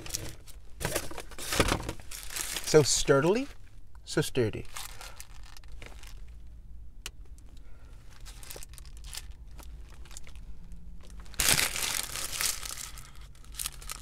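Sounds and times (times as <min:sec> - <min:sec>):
paper wrapper crinkling: 0:01.4 - 0:03.4, 0:04.7 - 0:06.2, 0:08.2 - 0:10.4, 0:11.1 - 0:14.0.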